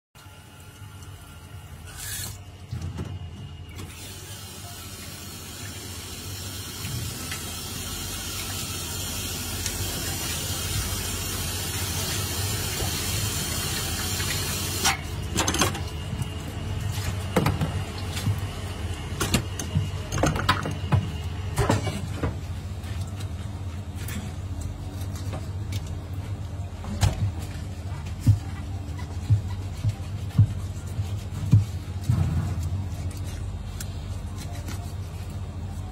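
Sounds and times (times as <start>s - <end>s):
tap water running into sink: 4.0s - 14.9s.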